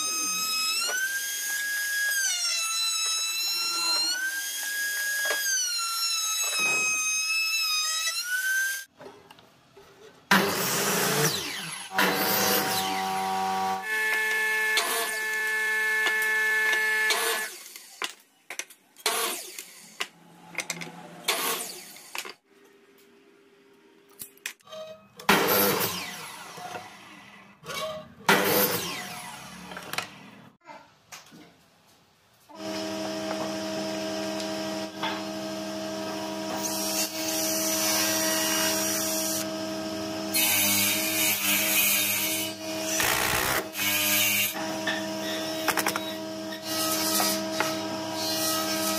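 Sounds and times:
miter saw cutting wood: 10.3 - 18.0, 25.3 - 27.0, 32.5 - 48.9
router whining: 10.3 - 18.0, 32.6 - 48.9.

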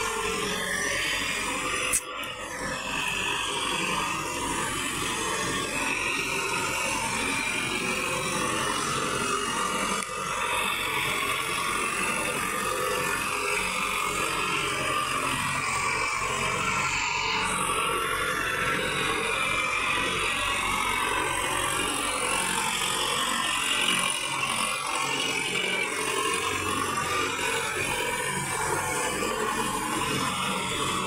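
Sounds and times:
tractor diesel engine running: 0.0 - 31.0.

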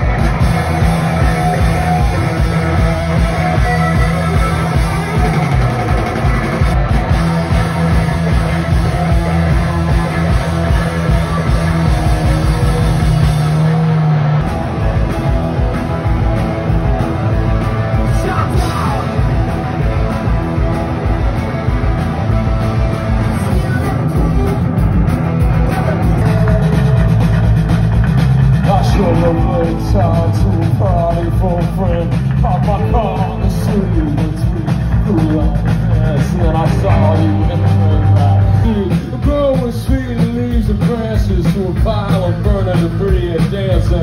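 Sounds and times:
live rock band music: 0.0 - 44.0.

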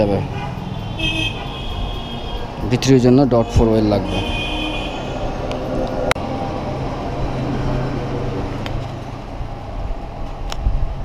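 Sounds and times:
road traffic rumble: 0.0 - 11.0.

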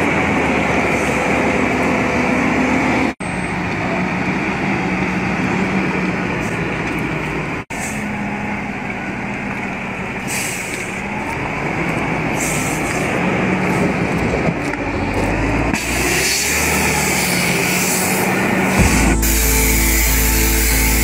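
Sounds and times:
dump truck diesel engine: 0.0 - 21.0.

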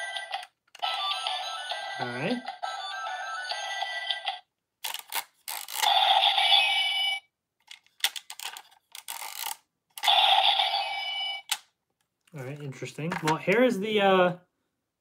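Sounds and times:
toy electronic sound effects: 0.0 - 4.4, 5.6 - 7.2, 10.0 - 11.5
plastic toy clicks: 4.8 - 5.9, 7.6 - 10.2.

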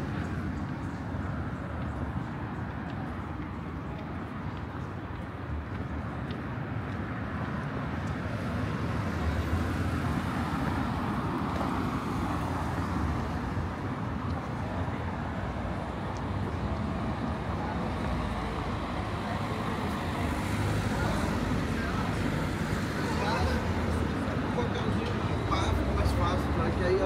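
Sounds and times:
traffic rumble: 0.0 - 27.0.

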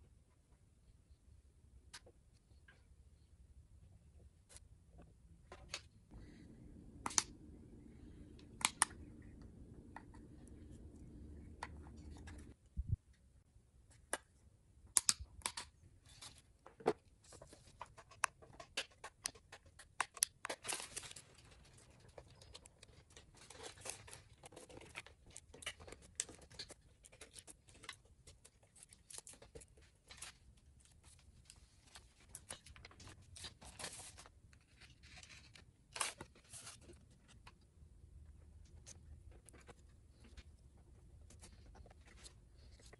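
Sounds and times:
low hum: 6.1 - 13.4.

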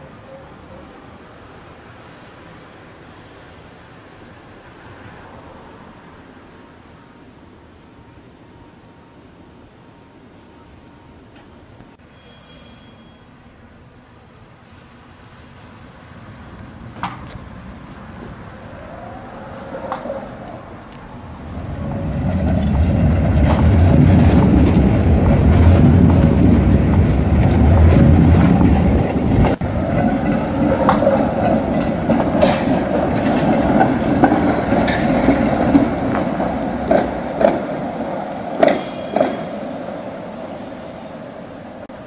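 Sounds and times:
tram wheels rumbling on rails: 0.0 - 42.0
wheels clicking over rail joints: 14.8 - 40.0
rising and falling whines: 17.6 - 32.6.

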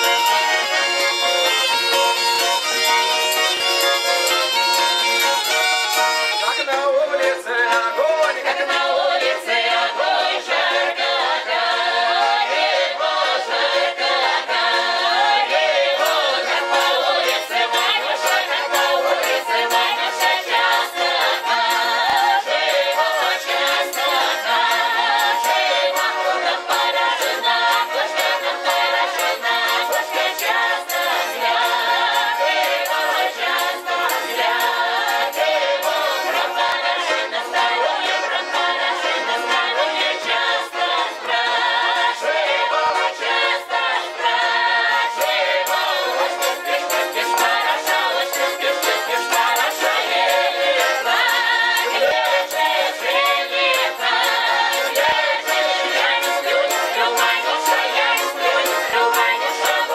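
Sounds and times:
button accordion: 0.0 - 59.9
folk choir singing: 0.0 - 59.9
tambourine jingles: 16.0 - 37.0, 44.9 - 59.9.

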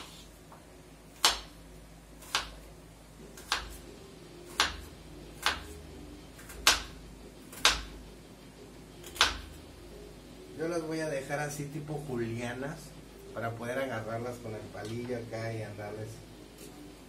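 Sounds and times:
knife slicing onion: 1.1 - 1.6, 2.2 - 2.7, 3.3 - 5.8, 6.4 - 8.0, 9.0 - 9.6.

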